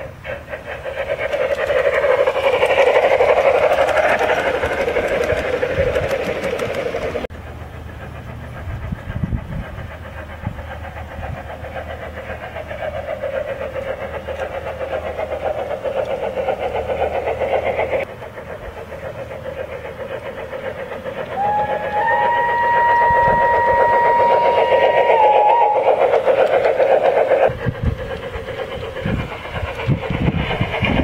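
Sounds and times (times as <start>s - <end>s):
model train clattering on track: 0.0s - 31.0s
steam locomotive whistle: 21.3s - 26.1s.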